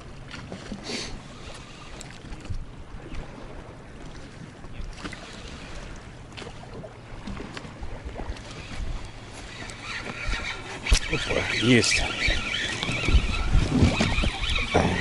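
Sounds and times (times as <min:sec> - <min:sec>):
water moving against boat: 0:00.0 - 0:15.0
wind buffeting microphone: 0:07.7 - 0:15.0.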